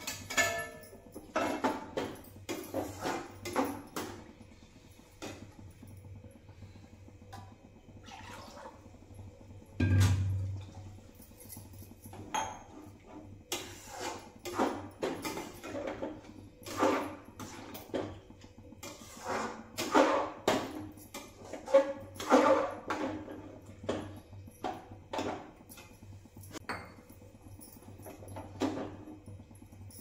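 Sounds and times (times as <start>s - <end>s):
low steady hum: 0.0s - 30.0s
metal ladle scraping a pan: 13.5s - 16.0s, 18.8s - 20.6s, 21.4s - 23.4s.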